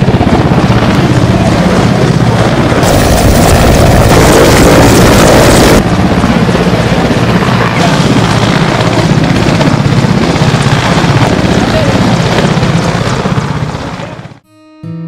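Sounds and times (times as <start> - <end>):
helicopter rotor chopping: 0.0 - 14.4
rush of noise: 2.6 - 8.8.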